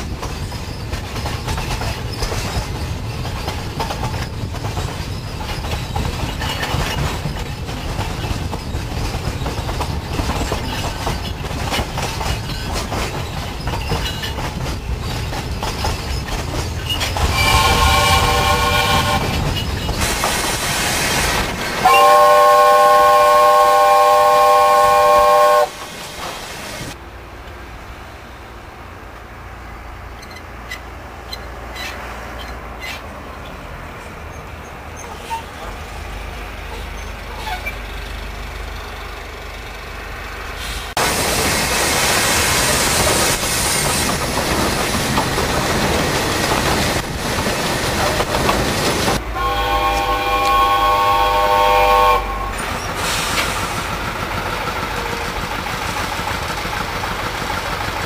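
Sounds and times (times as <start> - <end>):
train wagons rumbling over rail joints: 0.0 - 58.0
locomotive chime whistle: 17.3 - 19.4, 21.8 - 25.8, 49.3 - 52.6.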